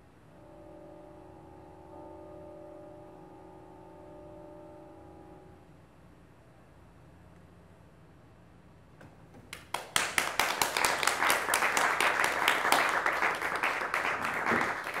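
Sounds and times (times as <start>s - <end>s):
audience applauding: 9.5s - 15.0s.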